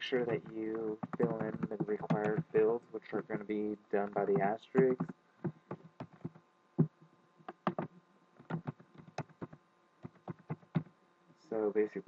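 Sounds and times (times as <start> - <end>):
faint electrical hum: 0.0 - 12.0
keyboard keys tapping: 0.1 - 10.9.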